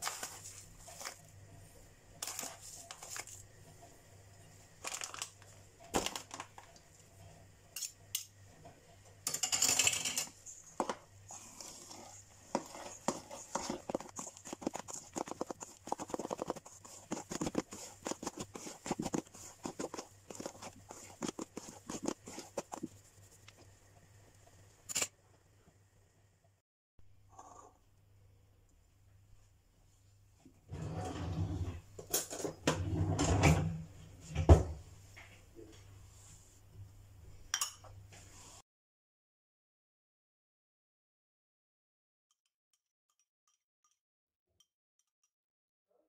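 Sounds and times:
hand kneading dough in a bowl: 0:00.0 - 0:01.4, 0:02.2 - 0:03.5, 0:10.6 - 0:23.8
rustling noise: 0:10.5 - 0:23.7
clicks and scrapes against bowl: 0:11.3 - 0:23.6.

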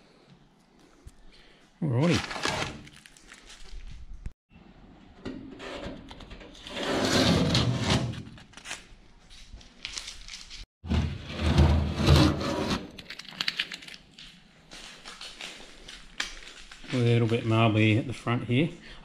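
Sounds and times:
tape peeling and tearing: 0:08.3 - 0:09.0.

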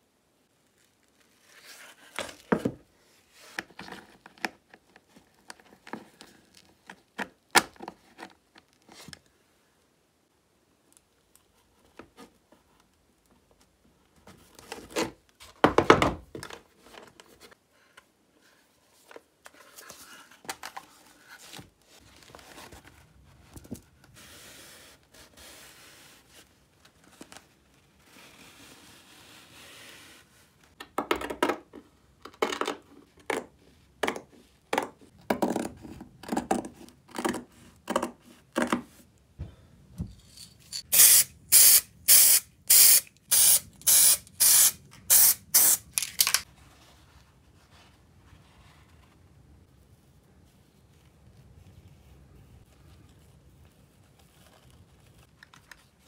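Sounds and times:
material rustling and crinkling: 0:00.4 - 0:09.4, 0:16.4 - 0:30.8, 0:46.4 - 0:56.0.

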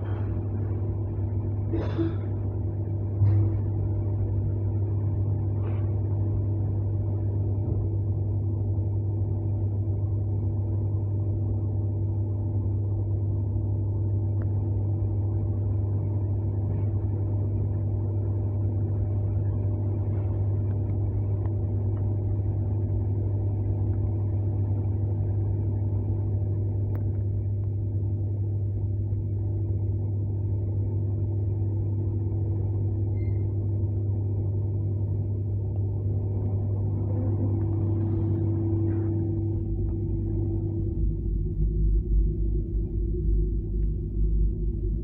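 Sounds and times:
low electrical hum: 0:00.0 - 0:45.0
train running rumble: 0:35.6 - 0:44.0.

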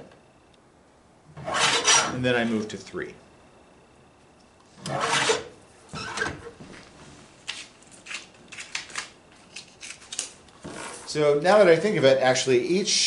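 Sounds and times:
paper cutter blade shearing board: 0:01.4 - 0:02.2, 0:04.8 - 0:06.3.

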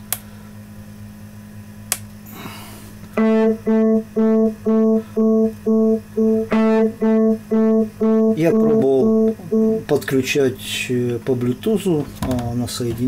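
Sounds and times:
low steady hum: 0:00.0 - 0:11.8
repeated pitched note: 0:03.2 - 0:09.9.

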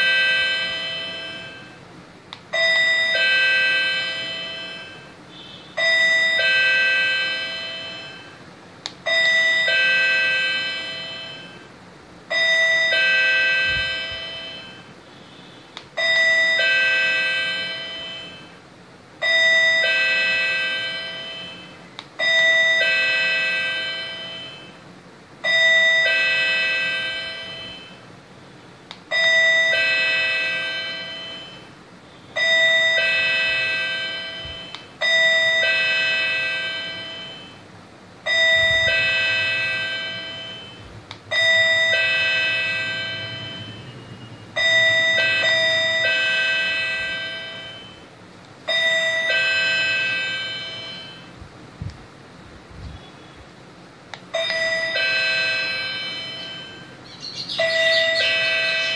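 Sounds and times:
electronic ding-dong chime: 0:12.3 - 0:14.9, 0:19.2 - 0:24.8, 0:25.5 - 0:28.0, 0:32.4 - 0:37.6, 0:38.3 - 0:44.0, 0:48.7 - 0:51.3, 0:54.4 - 0:58.9.

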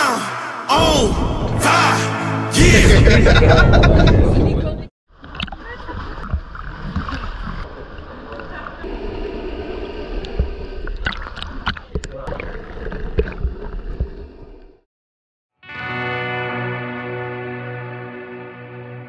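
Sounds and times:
sea water sloshing and gurgling: 0:05.1 - 0:14.8
muffled underwater swimming: 0:05.2 - 0:14.8.

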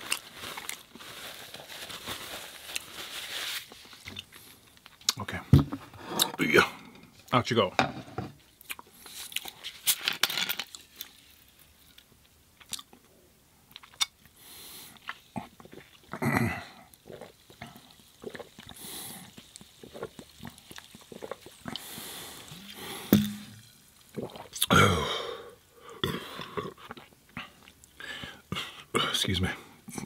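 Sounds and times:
person gulping and swallowing: 0:15.3 - 0:21.9, 0:22.5 - 0:28.0.

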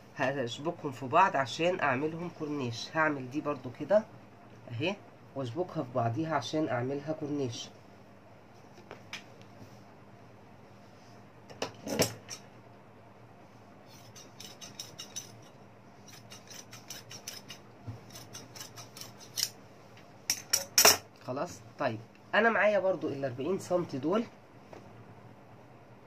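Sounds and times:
shears snipping fabric: 0:16.0 - 0:19.6.

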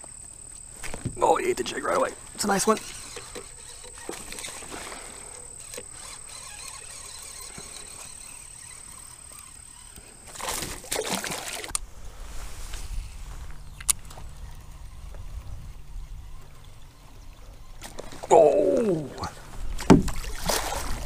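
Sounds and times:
water sloshing and trickling: 0:00.6 - 0:11.8, 0:19.0 - 0:21.0.

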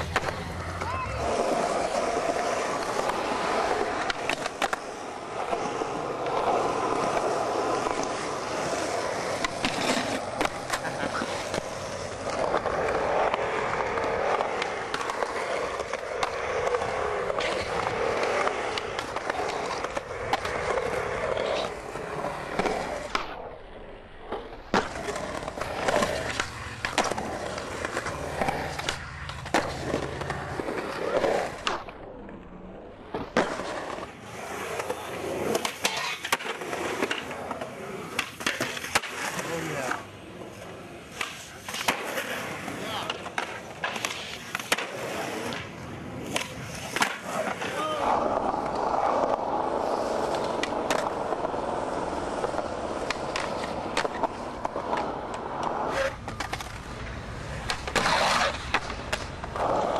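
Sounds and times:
skateboard trucks scraping a ledge: 0:00.0 - 0:59.9
skateboard wheels rolling on concrete: 0:00.0 - 0:59.9
skateboard wheels slapping down: 0:00.0 - 0:59.9
skateboard tail pops: 0:22.5 - 0:23.4, 0:41.1 - 0:42.3, 0:43.0 - 0:47.8, 0:57.6 - 0:59.9.

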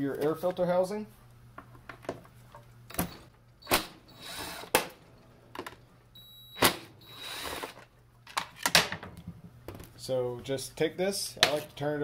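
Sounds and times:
cordless impact driver running: 0:04.1 - 0:04.7, 0:07.1 - 0:07.7.

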